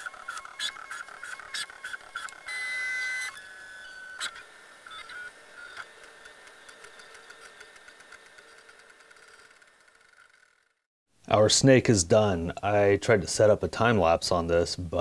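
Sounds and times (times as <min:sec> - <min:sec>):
motors humming: 0:00.0 - 0:10.8
stepper motors whirring: 0:00.0 - 0:10.8.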